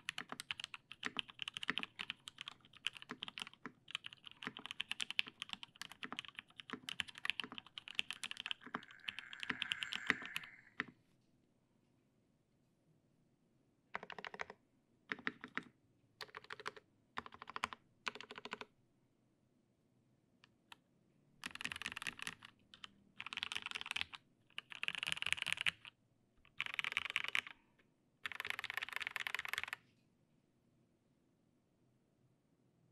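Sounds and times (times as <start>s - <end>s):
rapid mechanical keyboard typing: 0.0s - 10.8s, 14.0s - 18.6s, 21.4s - 25.9s, 26.5s - 27.6s, 28.2s - 29.8s.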